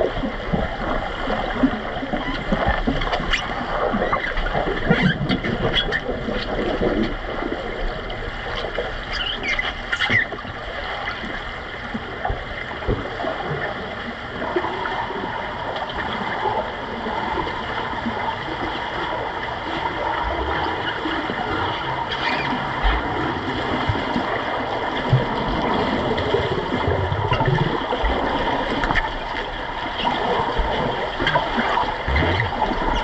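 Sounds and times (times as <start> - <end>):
bubbles: 0.0 - 33.0
churning water underwater: 0.0 - 33.0.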